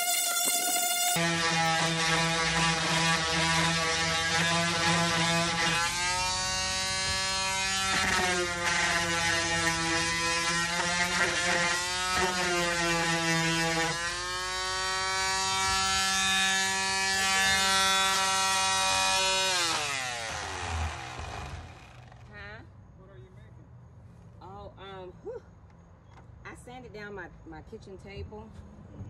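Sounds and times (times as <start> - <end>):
electric sander whining: 0.0 - 22.4.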